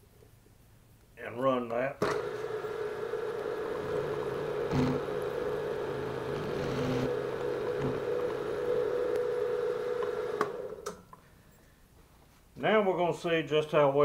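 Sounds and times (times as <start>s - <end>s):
milling machine spindle humming: 2.0s - 11.0s.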